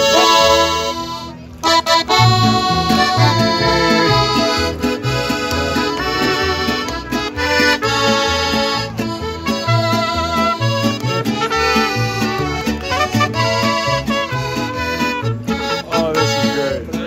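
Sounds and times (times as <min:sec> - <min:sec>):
music with rhythmic bass line: 0:01.6 - 0:17.0.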